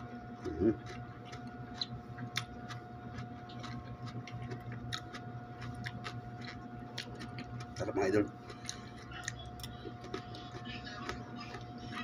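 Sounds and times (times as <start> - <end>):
chewing crisp cucumber: 0.0 - 12.0
steady hum: 0.0 - 12.0.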